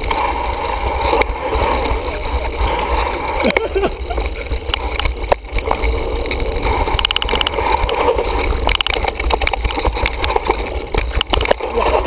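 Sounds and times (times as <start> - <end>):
bike rattling and clicking: 0.0 - 12.0
rapid ticking: 0.0 - 12.0
tyres rolling over dirt: 0.0 - 12.0
wind rumbling on microphone: 0.0 - 12.0.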